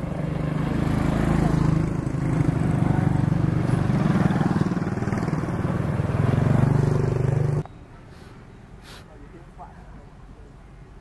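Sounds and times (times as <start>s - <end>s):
engine running close by: 0.0s - 7.7s.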